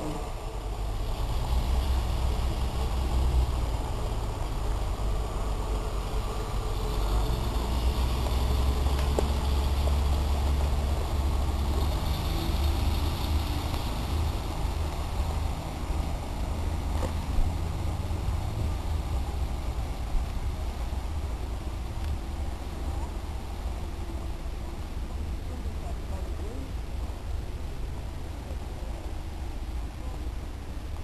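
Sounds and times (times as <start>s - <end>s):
train diesel engines droning: 0.0s - 31.0s.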